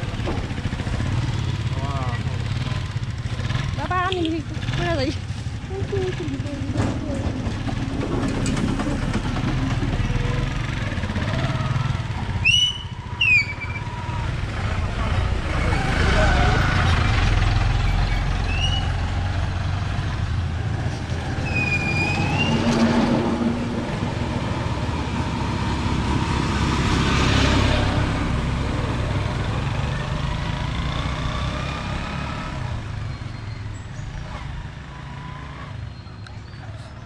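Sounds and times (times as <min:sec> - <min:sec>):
motorcycle engine running: 0:00.0 - 0:21.1
pickup truck passing: 0:04.5 - 0:35.9.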